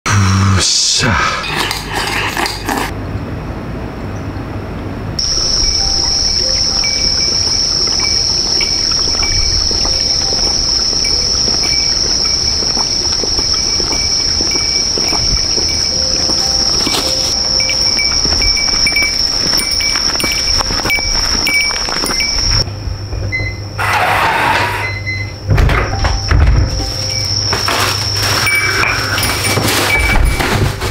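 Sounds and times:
insect short chirps: 5.2s - 12.6s
insect high-pitched droning call: 5.2s - 22.8s, 23.4s - 30.6s.

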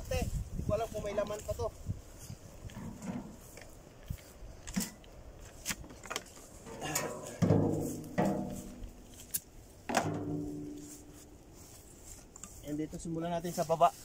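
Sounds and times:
metal wheelbarrow clanging: 2.8s - 3.4s, 4.7s - 5.0s, 5.9s - 9.3s, 9.9s - 11.2s
plastic crates knocking: 9.9s - 10.5s.

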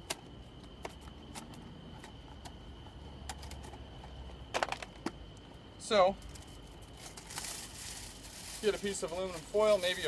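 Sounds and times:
aluminum foil crackling: 6.2s - 10.0s.

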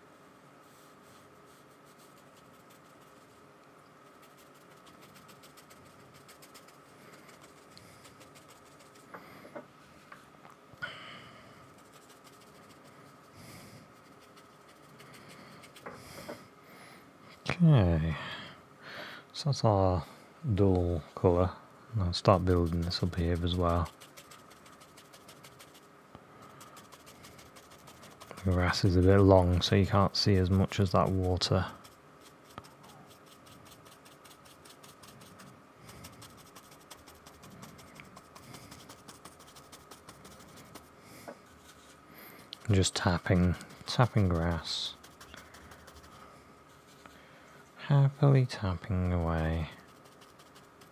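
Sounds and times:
paintbrush scratching on paper: 0.7s - 9.1s, 11.6s - 16.3s, 22.2s - 47.2s, 49.0s - 50.9s.

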